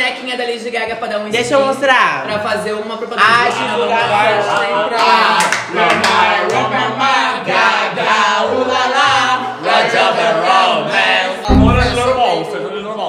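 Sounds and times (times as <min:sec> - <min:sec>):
people singing: 0:03.6 - 0:12.3
stepping bass line: 0:11.5 - 0:12.3.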